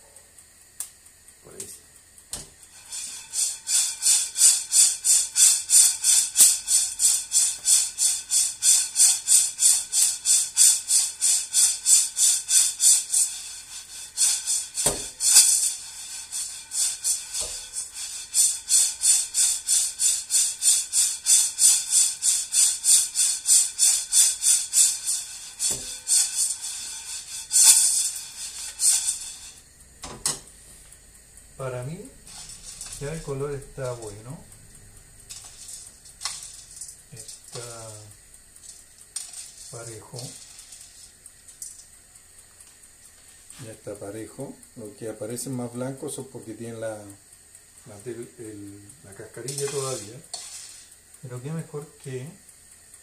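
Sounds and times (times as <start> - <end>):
coffee beans rattling in a pan: 0.0 - 53.0
pan knocking: 14.3 - 18.0.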